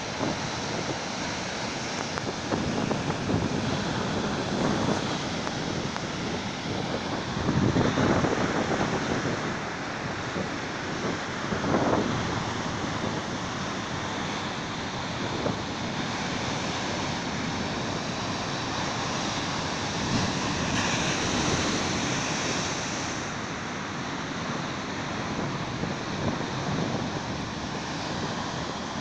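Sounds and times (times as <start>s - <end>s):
surf breaking on rocks: 16.2s - 23.4s.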